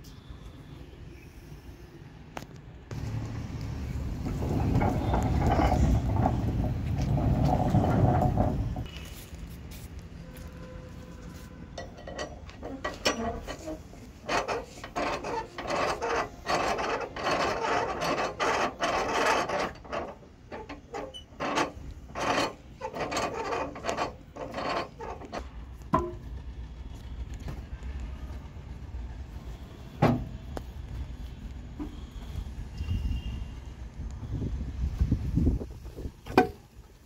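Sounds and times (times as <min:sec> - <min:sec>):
metal screw clamp rasping: 0:11.9 - 0:25.5.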